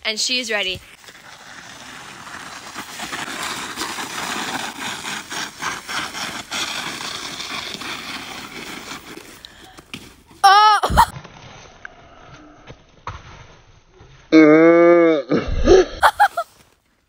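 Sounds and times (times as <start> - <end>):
plastic sled scraping over snow: 0.3 - 11.1, 16.0 - 16.7.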